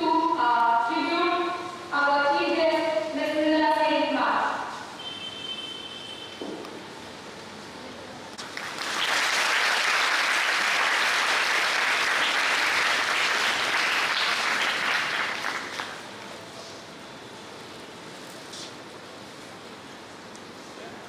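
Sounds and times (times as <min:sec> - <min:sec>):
audience applauding: 0:08.4 - 0:16.1.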